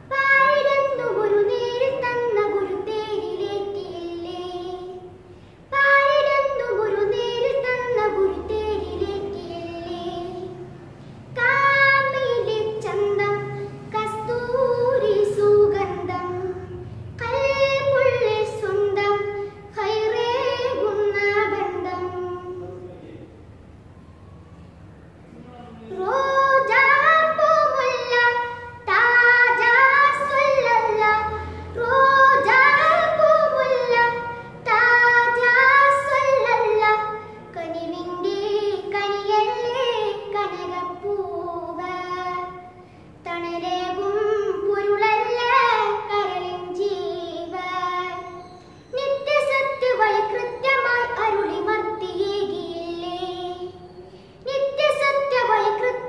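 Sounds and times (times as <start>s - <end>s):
boy singing unaccompanied: 0.0s - 23.0s, 25.8s - 56.0s
singer breathing: 5.2s - 5.7s, 42.7s - 43.2s, 54.0s - 54.4s.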